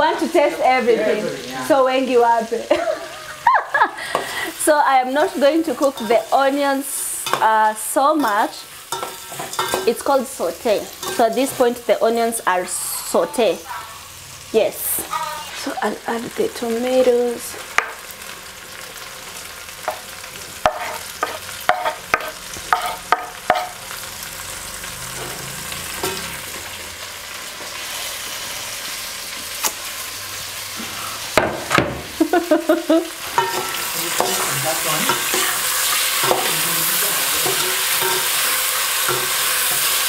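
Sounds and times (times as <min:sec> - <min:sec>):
food frying sizzle: 0:00.0 - 0:40.0
metal spoon clinking on pot: 0:08.2 - 0:09.9, 0:11.0 - 0:11.3, 0:33.4 - 0:34.4, 0:37.4 - 0:38.4.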